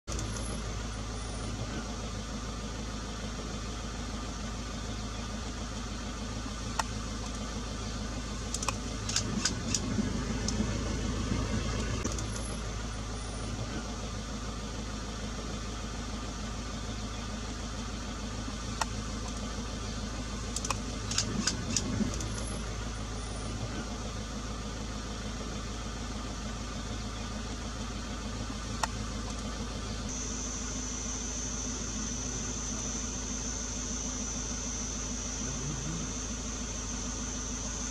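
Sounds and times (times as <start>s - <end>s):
vehicle engine idling: 0.0s - 37.9s.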